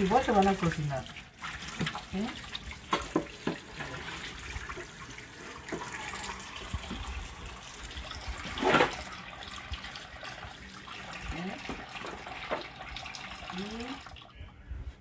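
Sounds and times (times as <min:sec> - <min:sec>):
tap water splashing: 0:00.0 - 0:07.8, 0:08.4 - 0:10.6, 0:11.4 - 0:13.3.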